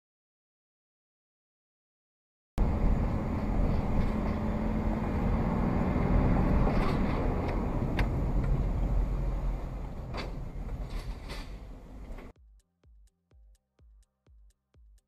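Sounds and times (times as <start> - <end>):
steady hum: 2.6 - 12.3
vehicle engine and road rumble: 2.6 - 12.4.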